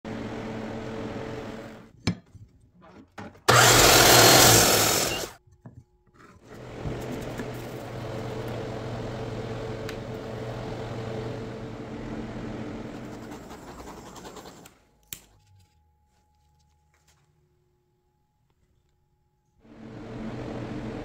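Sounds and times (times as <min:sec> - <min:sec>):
machine motor humming and hissing: 0:03.5 - 0:05.4.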